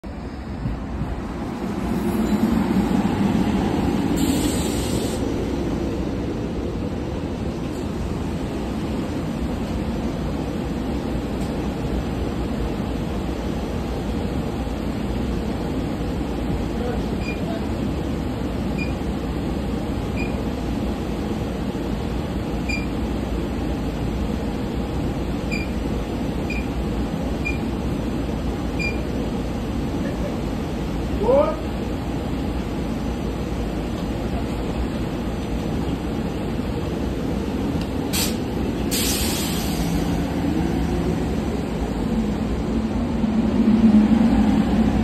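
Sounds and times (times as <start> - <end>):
train rumbling: 0.0 - 45.0
brief hiss: 4.2 - 5.3, 38.1 - 40.1.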